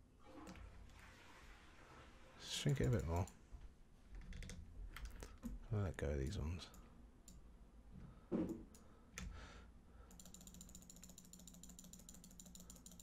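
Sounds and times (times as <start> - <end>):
soft clicks: 2.8 - 3.4, 6.6 - 7.4
rapid mechanical ticking: 10.1 - 13.0.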